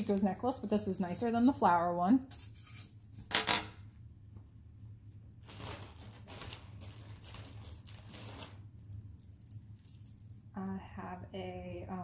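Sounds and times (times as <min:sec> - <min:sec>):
packaging rustling: 0:05.4 - 0:08.8.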